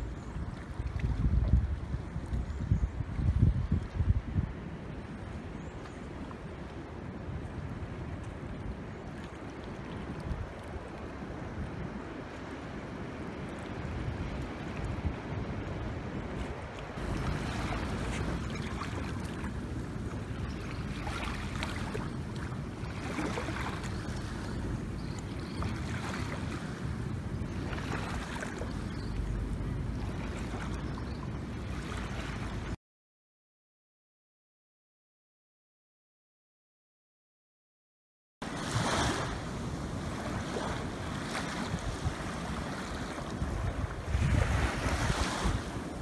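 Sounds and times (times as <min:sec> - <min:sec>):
wind rumbling on microphone: 0:00.0 - 0:32.8, 0:38.4 - 0:46.0
small waves washing onto sand: 0:04.6 - 0:32.8, 0:38.4 - 0:46.0.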